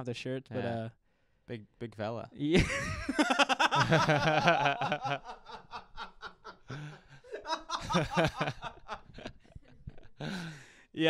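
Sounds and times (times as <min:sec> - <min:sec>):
people laughing together: 0:02.6 - 0:10.6.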